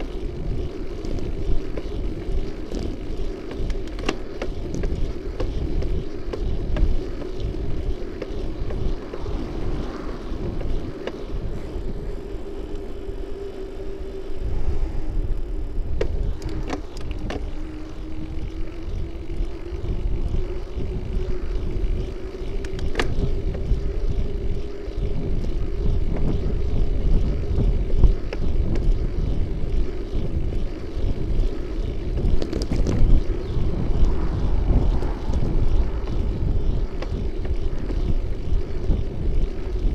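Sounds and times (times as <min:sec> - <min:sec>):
bicycle rattling over bumps: 0:00.0 - 0:39.9
road noise: 0:00.0 - 0:39.9
steady hum: 0:00.0 - 0:39.9
wind rumble on microphone: 0:00.0 - 0:39.9.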